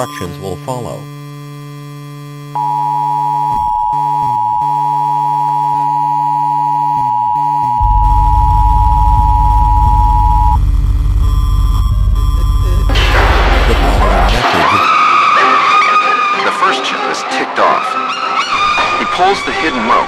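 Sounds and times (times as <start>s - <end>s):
low electronic hum: 0.0s - 14.6s
high-pitched test tone beep: 2.6s - 10.6s
loud low buzz: 7.6s - 14.9s.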